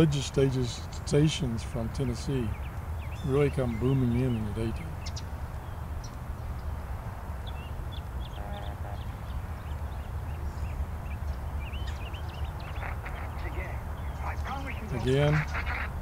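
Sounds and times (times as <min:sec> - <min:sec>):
small birds chirping: 0:00.0 - 0:16.0
radio static and hiss: 0:12.8 - 0:16.0.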